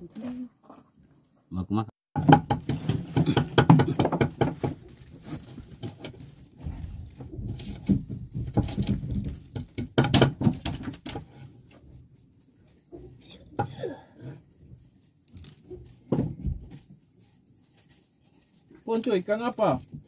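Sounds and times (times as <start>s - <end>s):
fishing line rustling and scraping: 4.8s - 8.1s, 16.8s - 19.9s.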